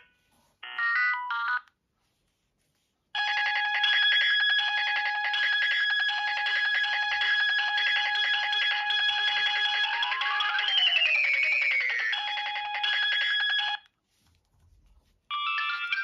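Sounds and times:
rapidly pulsing phone ring: 0:03.2 - 0:13.8, 0:15.3 - 0:16.0.

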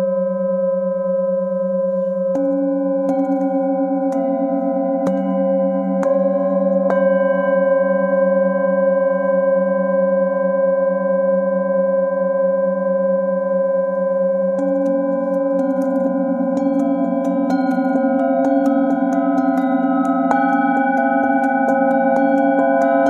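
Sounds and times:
singing bowls ringing: 0:01.7 - 0:23.0
mallet striking a bowl: 0:02.4 - 0:07.3, 0:14.6 - 0:23.0.

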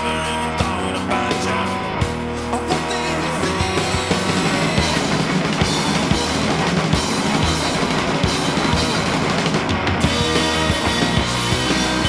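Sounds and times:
drum kit: 0:00.0 - 0:12.0
rock song from vinyl record: 0:00.0 - 0:12.0.

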